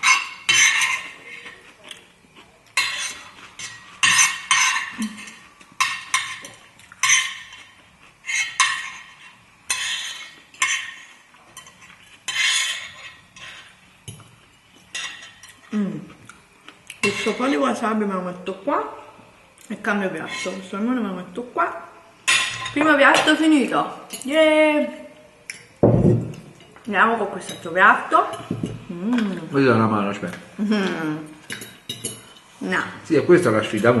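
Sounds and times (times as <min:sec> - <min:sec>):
fork scraping a plate: 0:00.0 - 0:02.0, 0:02.8 - 0:13.9, 0:20.2 - 0:20.7.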